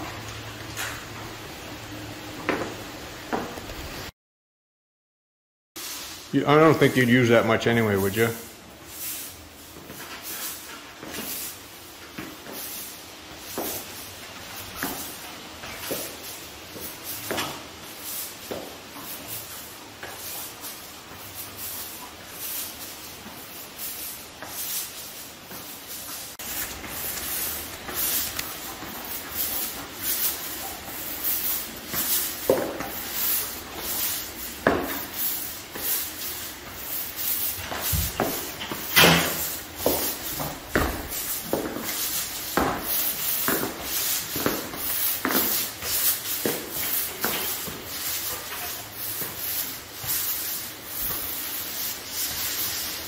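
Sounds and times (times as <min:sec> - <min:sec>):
paint roller sticky hiss: 0:12.3 - 0:53.0.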